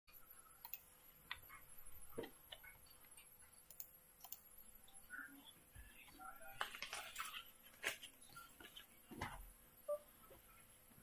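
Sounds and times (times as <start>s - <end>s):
faint mouse and keyboard clicks: 0.6s - 4.5s.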